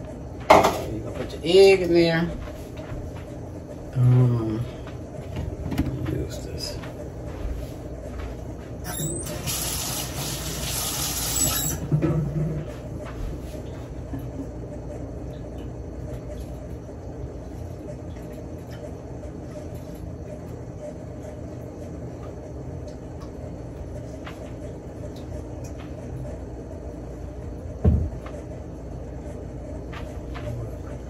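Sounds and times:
water running from tap: 8.9s - 11.9s
low steady hum: 11.8s - 31.0s.

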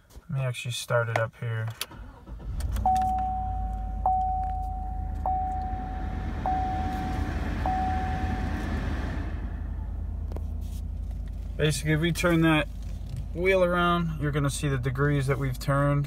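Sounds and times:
car engine starting and idling: 1.5s - 16.0s
dashboard warning chime: 2.8s - 9.3s.

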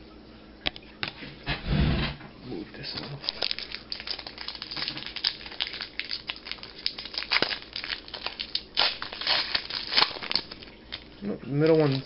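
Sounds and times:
foil wrapper crinkling: 2.9s - 12.0s.

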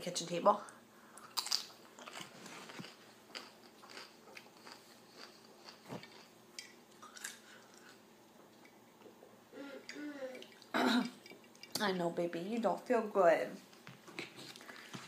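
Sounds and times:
chewing crunches: 1.2s - 8.0s.

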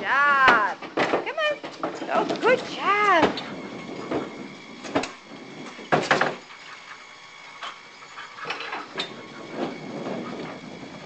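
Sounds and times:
toy bowling pins clattering: 0.3s - 5.2s.

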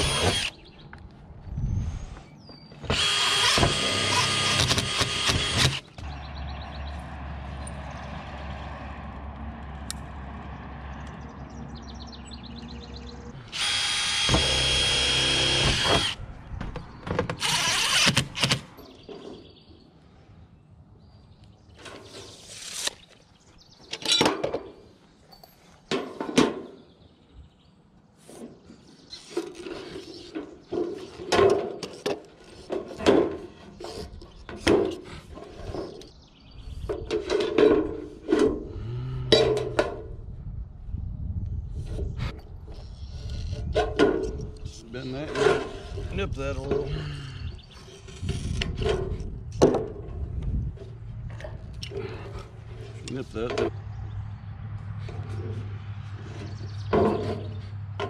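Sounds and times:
power tool running: 2.9s - 5.9s, 13.5s - 16.2s.

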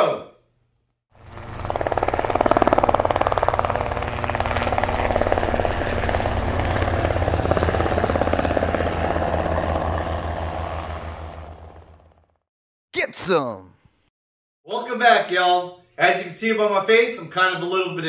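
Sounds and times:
aircraft rapid chopping drone: 1.2s - 12.3s.

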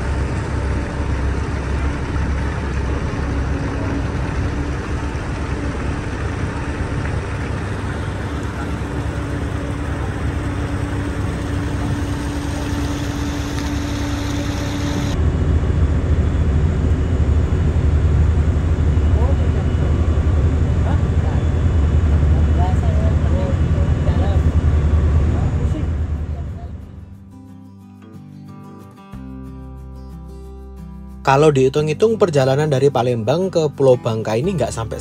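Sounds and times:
water rushing along hull: 0.0s - 15.2s
ferry engine drone: 0.0s - 27.3s.

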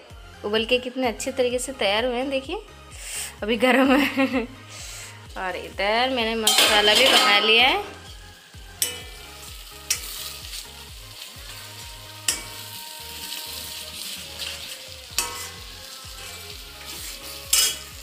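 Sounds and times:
paste sizzling in a pan: 4.6s - 18.0s
spoon clinking on a pan: 6.4s - 7.6s, 8.8s - 9.2s, 12.3s - 12.6s, 15.1s - 15.6s, 17.5s - 17.9s
spoon scraping a pan: 9.9s - 10.4s, 12.3s - 12.7s, 14.4s - 18.0s.

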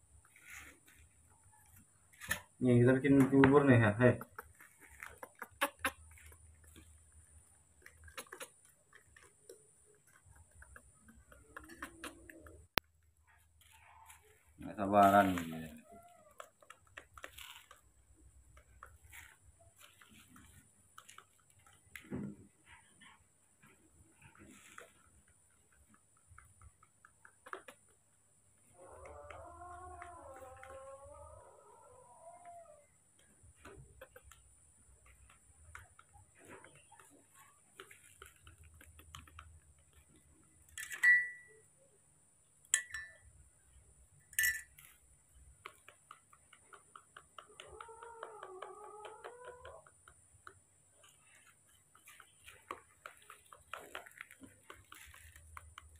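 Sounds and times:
faint clicks and rustles: 0.0s - 31.5s, 32.4s - 55.9s
spoon stirring in plastic cup: 42.7s - 43.2s, 44.4s - 44.8s.

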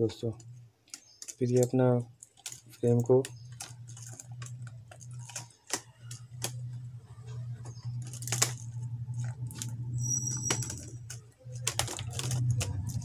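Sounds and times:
plastic keyboard clicks and taps: 0.8s - 6.8s, 10.6s - 13.0s
low hum: 6.1s - 13.0s.

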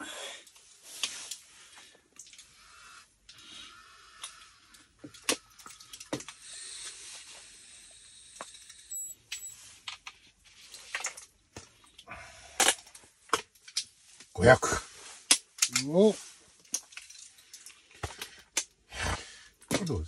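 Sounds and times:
short high beeps: 8.9s - 9.6s.

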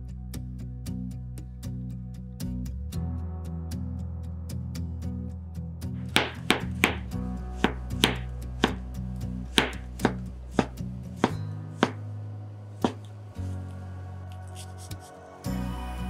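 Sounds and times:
soft background music: 2.8s - 16.0s
knife slicing mushrooms on board: 6.1s - 8.8s, 9.6s - 12.0s, 12.8s - 13.1s.

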